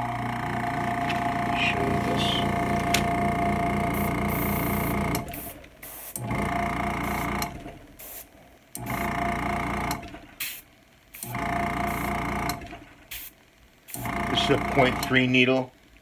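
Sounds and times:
compressor motor humming: 0:00.0 - 0:10.4, 0:11.2 - 0:13.1, 0:13.9 - 0:15.6
air hissing through airbrush: 0:03.9 - 0:06.2, 0:07.0 - 0:09.0, 0:10.4 - 0:11.3, 0:13.1 - 0:14.1.

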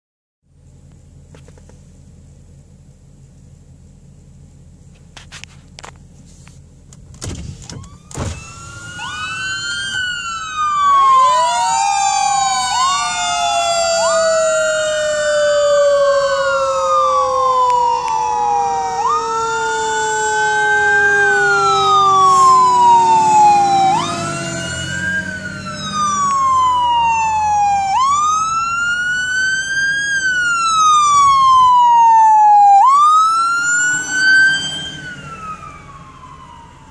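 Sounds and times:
low siren winding down: 0:07.5 - 0:36.9
siren rising and falling: 0:07.6 - 0:36.9.

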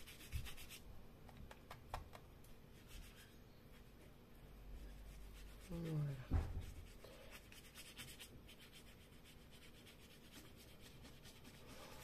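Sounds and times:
brush bristles rubbing on card: 0:00.0 - 0:00.8, 0:04.8 - 0:12.0.

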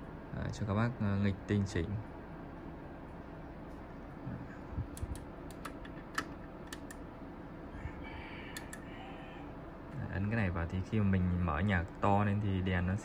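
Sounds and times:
button and switch clicks: 0:04.9 - 0:07.0.

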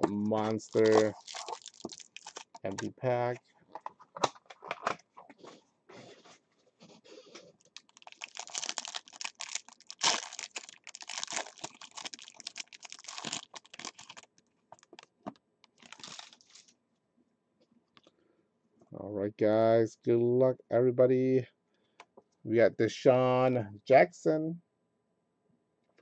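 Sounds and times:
wrapper crinkling: 0:00.3 - 0:03.4, 0:07.5 - 0:16.7.

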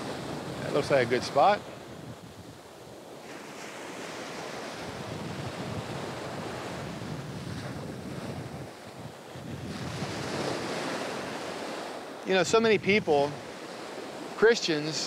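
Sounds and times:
wind buffeting microphone: 0:00.0 - 0:14.3
ocean surf breaking on beach: 0:00.0 - 0:15.0.

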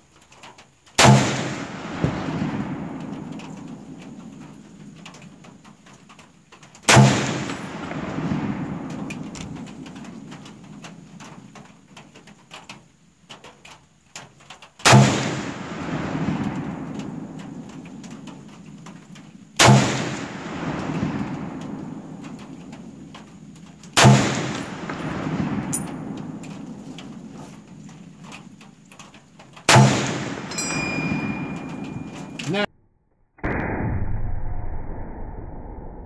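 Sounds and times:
rifle shots with long echo: 0:01.0 - 0:05.9, 0:06.8 - 0:11.7, 0:14.8 - 0:32.7.

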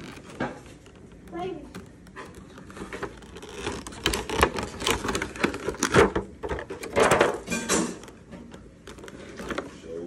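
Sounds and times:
plastic crinkling and clicking: 0:00.0 - 0:10.0.

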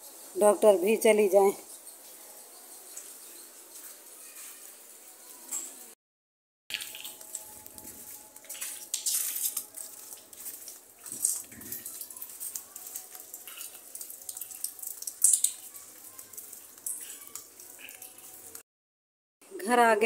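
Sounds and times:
splashy footsteps on wet ground: 0:06.7 - 0:15.6.

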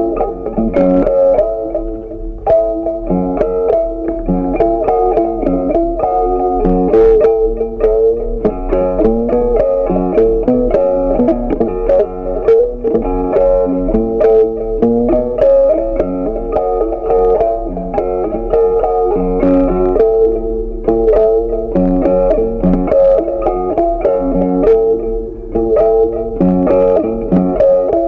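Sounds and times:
plucked string instrumental tune: 0:00.0 - 0:28.0.

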